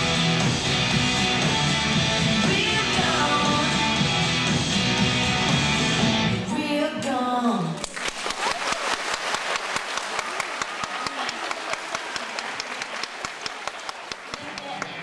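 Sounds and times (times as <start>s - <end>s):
audience applause: 7.8s - 15.0s.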